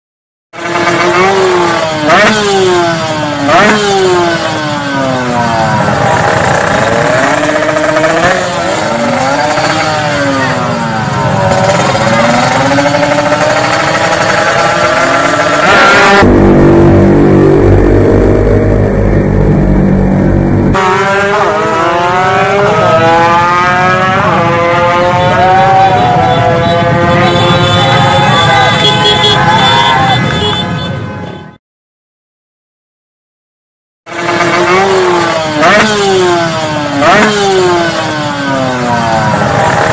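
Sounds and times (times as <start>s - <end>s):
drag bikes accelerating whine: 0.6s - 28.9s, 34.1s - 39.9s
motorcycle engine revving: 0.6s - 29.4s, 34.1s - 39.9s
deep engine rumble: 16.1s - 20.8s.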